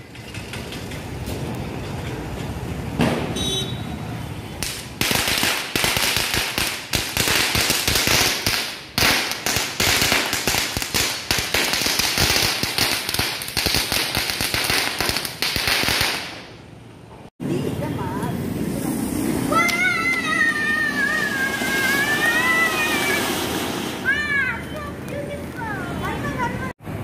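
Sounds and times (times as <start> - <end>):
firework hissing and crackling: 4.6 - 16.6, 18.6 - 24.6.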